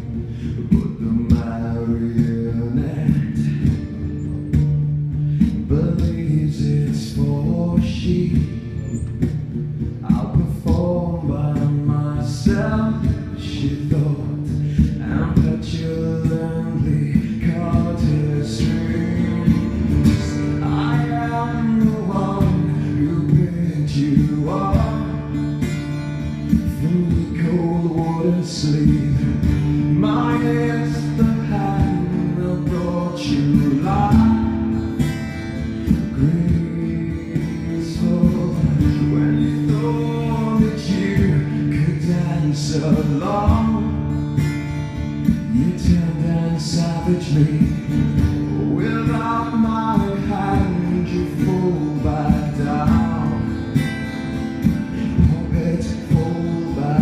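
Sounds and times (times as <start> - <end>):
man singing: 0.0 - 9.3, 10.0 - 57.0
acoustic guitar strumming: 0.0 - 57.0.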